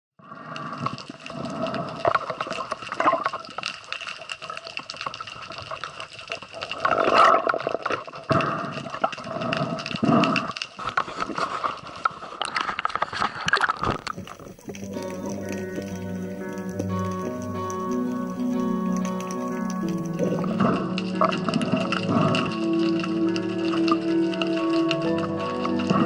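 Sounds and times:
crackling clicks underwater: 0:00.2 - 0:26.0
water rushing and gurgling: 0:13.8 - 0:23.1
steady tonal whine: 0:14.0 - 0:22.0.

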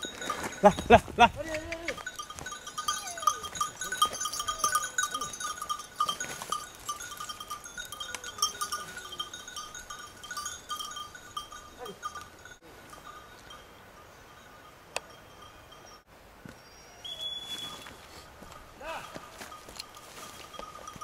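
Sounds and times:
dog collar bell jingling: 0:00.0 - 0:13.7, 0:19.0 - 0:21.0.

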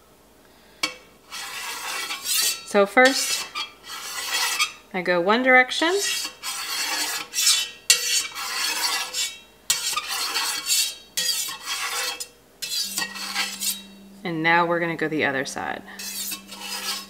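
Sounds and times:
metal spatula scraping a pot: 0:00.8 - 0:04.9, 0:05.7 - 0:14.1, 0:15.8 - 0:17.0.

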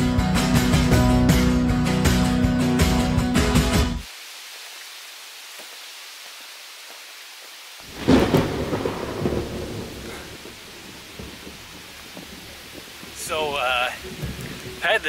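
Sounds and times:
rain hiss: 0:02.8 - 0:15.0
thunder crack and rumble: 0:07.9 - 0:14.8.

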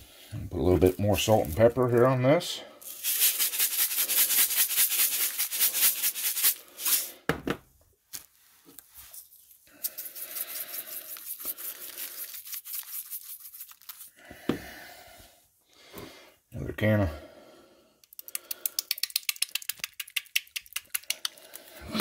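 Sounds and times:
spice grinder grinding: 0:02.8 - 0:07.1, 0:09.7 - 0:14.2.

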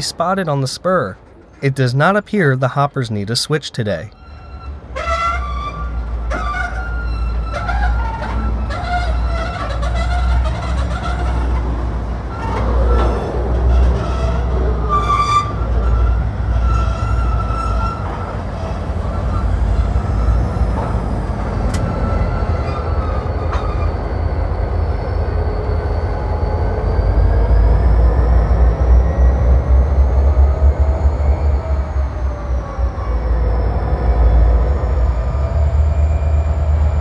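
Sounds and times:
diesel locomotive engines rumbling: 0:00.0 - 0:37.0
faint high whine: 0:19.2 - 0:37.0.

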